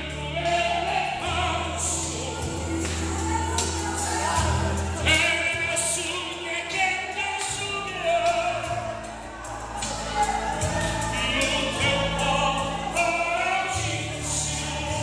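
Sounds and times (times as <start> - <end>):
sustained bass notes: 0.0 - 15.0
voices singing slow song: 0.0 - 15.0.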